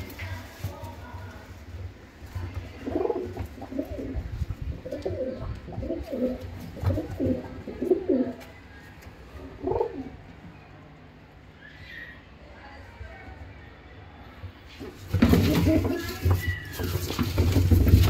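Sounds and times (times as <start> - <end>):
pigeons cooing: 2.8 - 8.4, 9.5 - 10.2.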